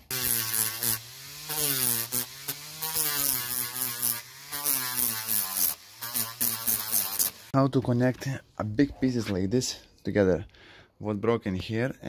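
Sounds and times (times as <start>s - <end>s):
power sander motor hum: 0.0s - 7.5s.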